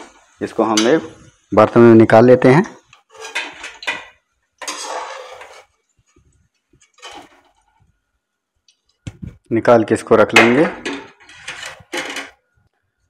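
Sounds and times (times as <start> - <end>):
metal spoon scraping a pan: 0.0 - 1.3, 2.9 - 5.9, 6.8 - 7.8, 10.3 - 12.4.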